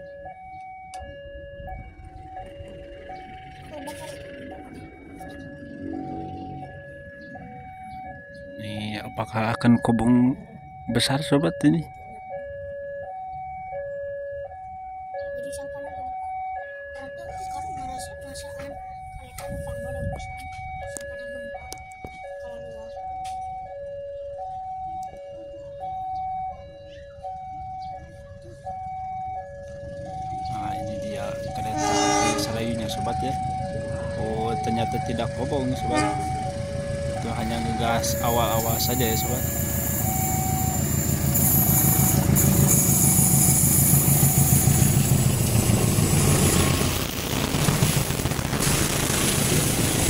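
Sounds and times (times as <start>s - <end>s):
two-tone level-crossing alarm: 0.0s - 47.2s
diesel locomotive engine passing: 1.3s - 9.6s, 28.5s - 50.0s
low rumble: 42.0s - 50.0s.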